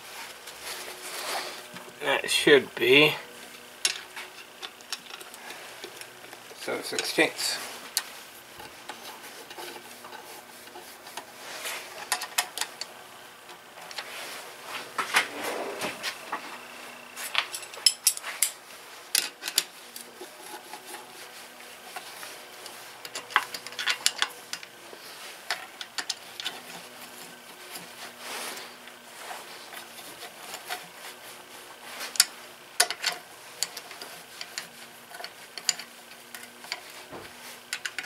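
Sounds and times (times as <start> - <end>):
hand tools clinking on metal: 17.4 - 18.6.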